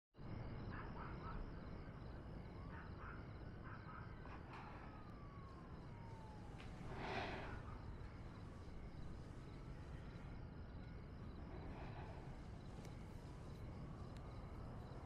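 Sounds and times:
low background rumble: 4.4s - 15.0s.

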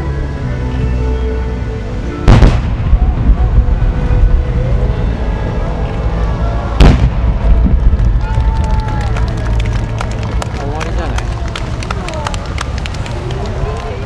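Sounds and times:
music playing: 0.0s - 14.0s
firework shells booming: 2.3s - 3.3s, 6.8s - 8.1s.

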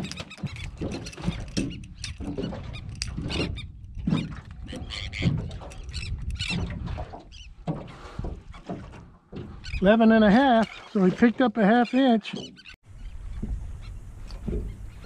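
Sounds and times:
fish flopping on metal deck: 0.0s - 11.4s.

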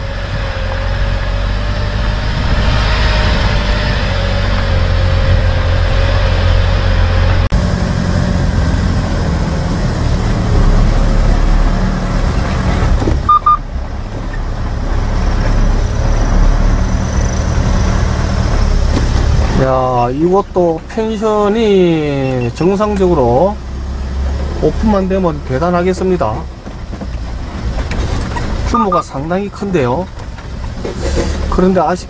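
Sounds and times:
vehicle engine and tyre rumble: 0.0s - 32.0s
faint beeps: 13.2s - 13.6s, 22.0s - 23.0s, 28.7s - 29.2s.

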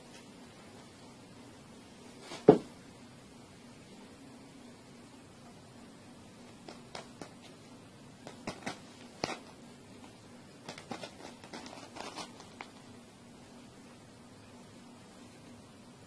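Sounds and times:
paw dragging cheese puffs on straw mat: 8.2s - 12.8s.

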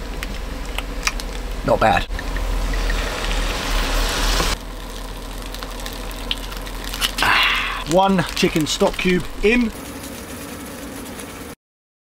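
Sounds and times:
steady low hum: 0.0s - 11.6s
wine sizzling in a hot pan: 2.1s - 11.6s.

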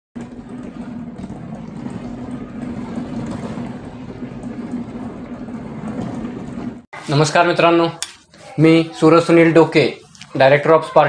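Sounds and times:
mechanical rumbling drone: 0.2s - 6.9s.

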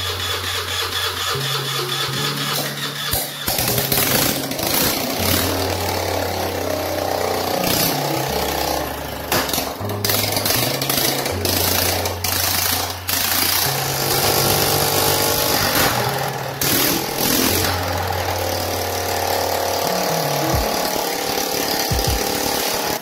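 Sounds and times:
background music with bass line: 0.0s - 23.0s
scooter engine running: 0.0s - 23.0s
exhaust backfiring pops: 7.5s - 23.0s.

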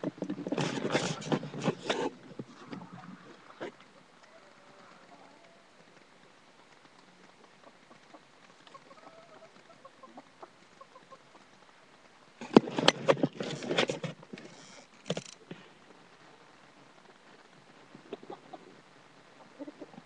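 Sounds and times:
knocks and scuffling at microphone: 0.0s - 3.9s, 12.4s - 15.7s
chickens clucking: 7.4s - 11.6s, 18.1s - 18.8s, 19.4s - 20.0s.

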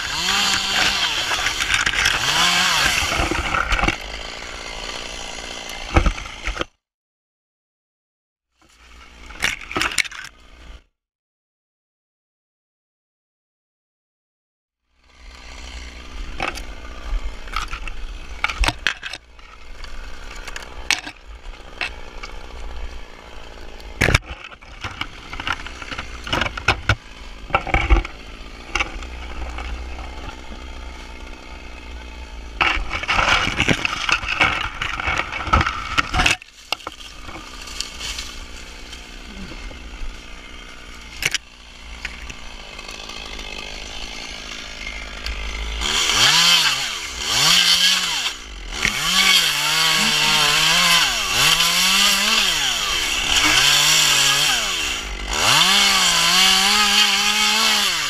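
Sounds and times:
dry palm fronds crackling: 33.0s - 44.0s.

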